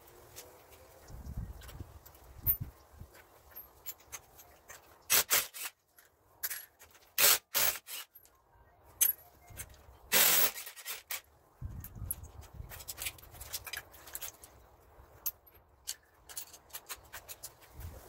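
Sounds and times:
impact wrench bursts: 5.1 - 5.7, 7.2 - 8.1, 10.1 - 11.2.

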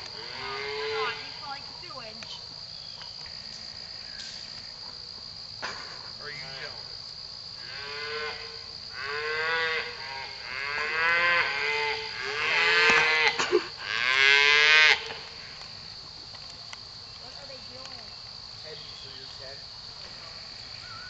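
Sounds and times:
cattle mooing: 7.6 - 15.0.

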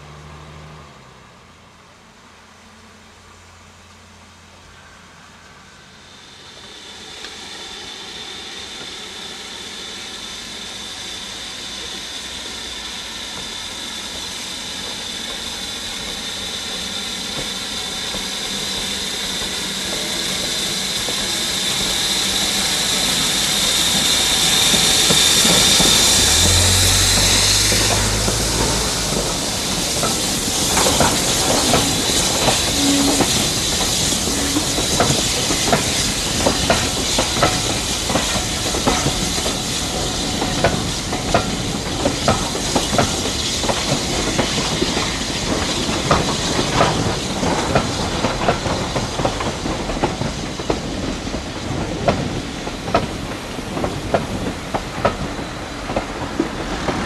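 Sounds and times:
deep train rumble: 0.0 - 57.0
hiss of escaping steam: 4.5 - 57.0
wheels clicking over rail joints: 21.1 - 57.0.

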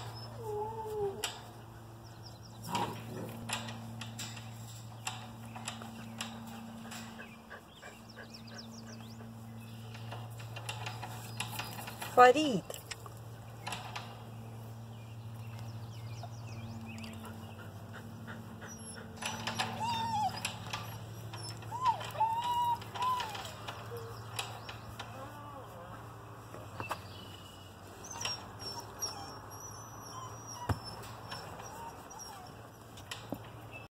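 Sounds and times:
puppy whining squeaks: 0.0 - 1.2, 18.6 - 24.3, 27.9 - 33.0
steady low hum: 0.0 - 28.0.

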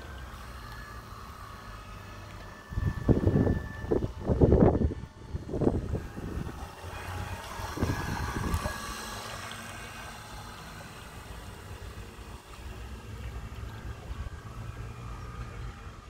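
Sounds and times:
faint model boat motor whine: 0.0 - 16.0
wind buffeting microphone: 2.6 - 9.2.

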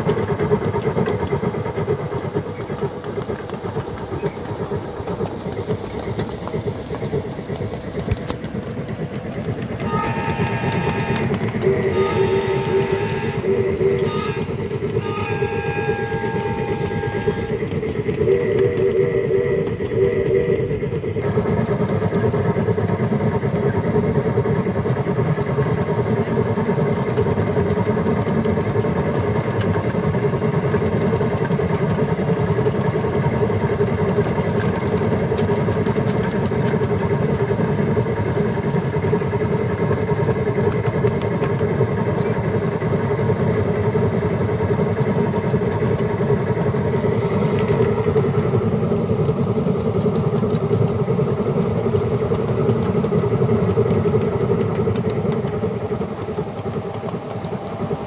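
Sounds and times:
wheels rumbling on rails: 0.0 - 58.0
high whine: 3.5 - 24.2
electric drive whine: 9.5 - 21.7.

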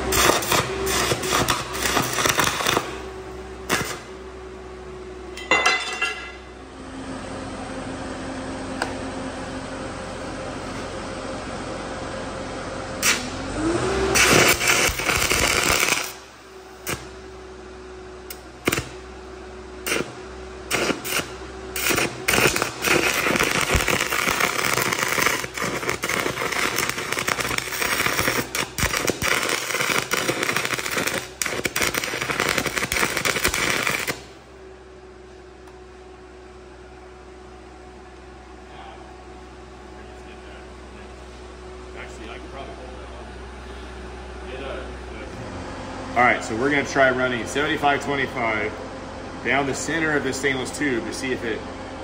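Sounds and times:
welding arc crackling: 0.0 - 4.1, 13.0 - 13.4, 14.0 - 17.2, 18.3 - 19.1, 19.8 - 34.4
welder engine running: 0.0 - 52.0.

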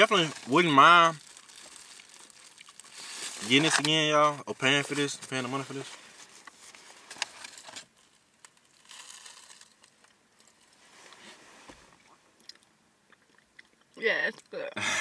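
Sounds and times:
aluminium foil crinkling: 0.0 - 4.1, 4.7 - 11.3.

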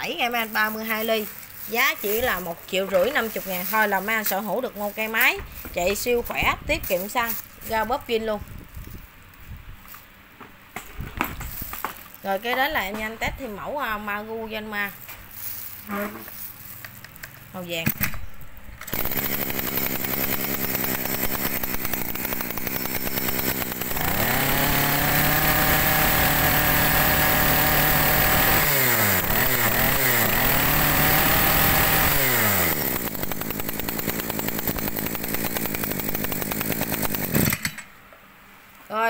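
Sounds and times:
brush cutter engine revving: 0.0 - 8.3, 18.6 - 37.8.

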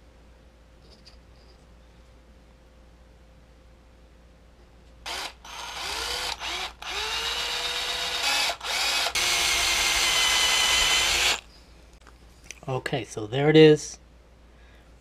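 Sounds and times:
cordless drill whining: 5.1 - 11.4.

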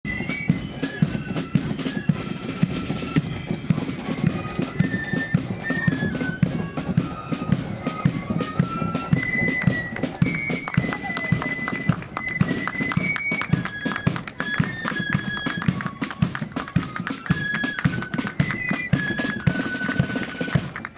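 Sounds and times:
flutes playing march melody: 0.0 - 20.9.

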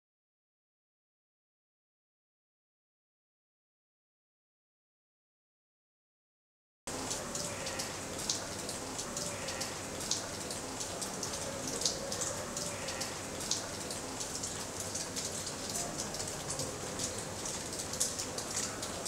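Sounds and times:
water dripping onto stone: 6.9 - 19.0.

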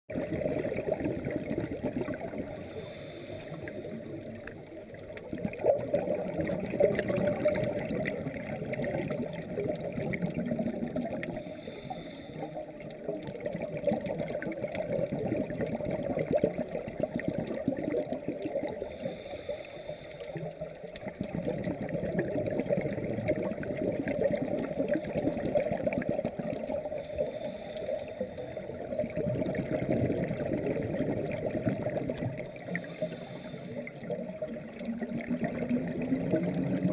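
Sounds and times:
exhaled bubbles gurgling: 0.1 - 36.9
scuba regulator breathing underwater: 2.0 - 4.5, 6.0 - 13.2, 17.9 - 21.4, 26.5 - 35.1.

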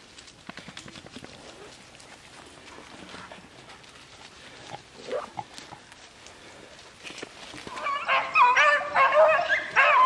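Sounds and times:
rustling in dry brush: 0.0 - 8.4.

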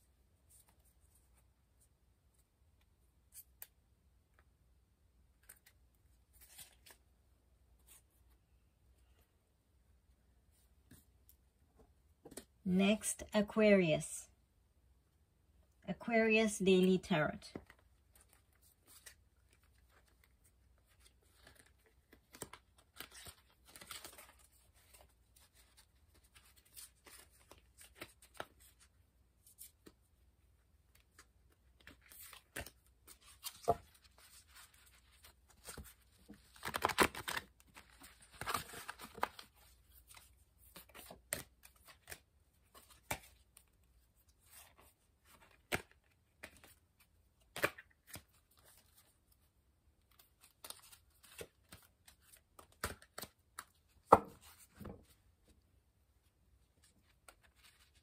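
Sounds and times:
cards shuffling: 5.4 - 7.0, 17.5 - 30.0, 31.0 - 43.8, 50.1 - 54.9, 56.9 - 58.0.

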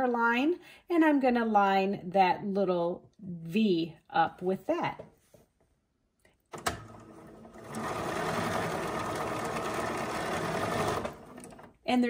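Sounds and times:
sewing machine stitching: 6.5 - 11.8.

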